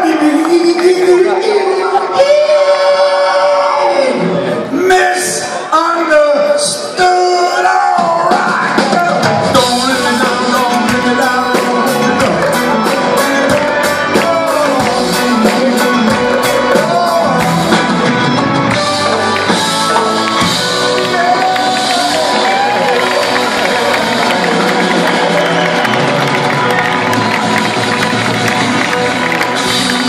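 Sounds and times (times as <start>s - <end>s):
live rock band playing: 6.4s - 30.0s.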